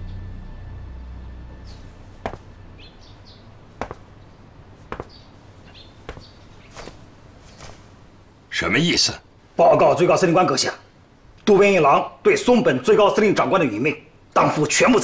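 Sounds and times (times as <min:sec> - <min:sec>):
low background music drone: 0:00.0 - 0:03.7
sharp knocks: 0:02.2 - 0:02.5, 0:03.8 - 0:04.1, 0:04.8 - 0:05.2, 0:06.0 - 0:07.0.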